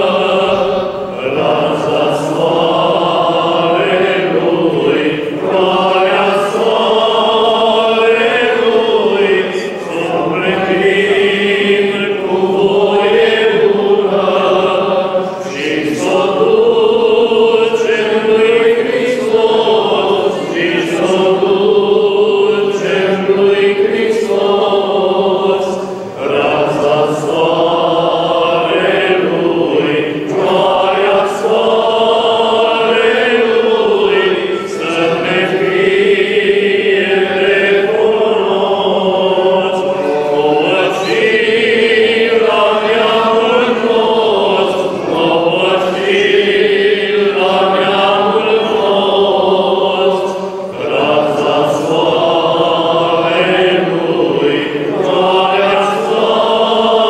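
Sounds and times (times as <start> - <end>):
men chanting a hymn: 0.0 - 57.0.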